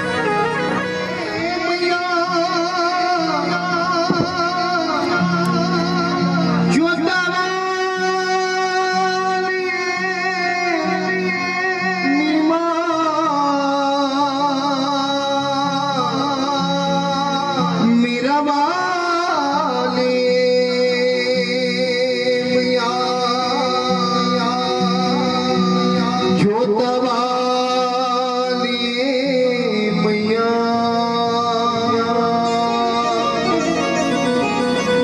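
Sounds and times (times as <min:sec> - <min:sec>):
sustained instrumental accompaniment: 0:00.0 - 0:35.0
person singing wavering notes: 0:30.1 - 0:35.0.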